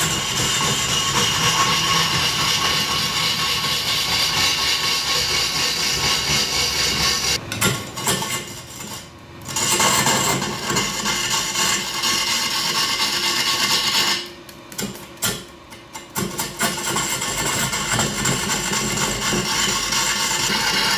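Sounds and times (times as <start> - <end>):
wood lathe cutting log: 0.0 - 7.4, 16.9 - 20.9.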